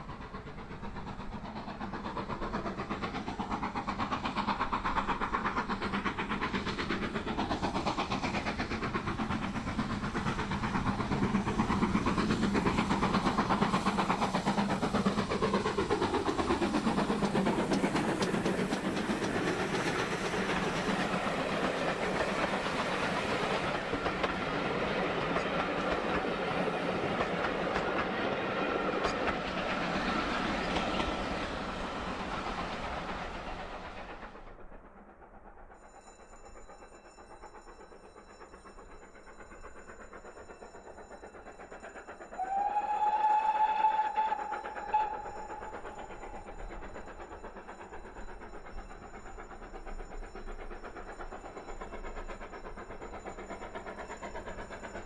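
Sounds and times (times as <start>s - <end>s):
train wheels clattering over rail joints: 0.0s - 34.6s
steam locomotive exhaust beats: 0.0s - 55.0s.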